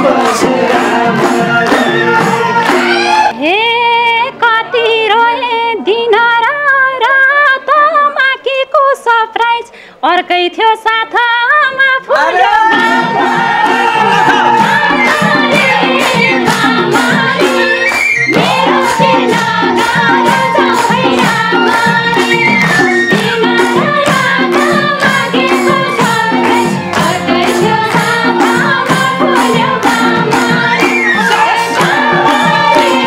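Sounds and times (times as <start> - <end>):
hand drums beating rhythm: 0.0 - 3.3, 12.6 - 33.0
flute melody with slides: 0.0 - 3.8, 12.4 - 23.7, 30.4 - 33.0
hands clapping in time: 0.1 - 3.2, 15.1 - 30.2.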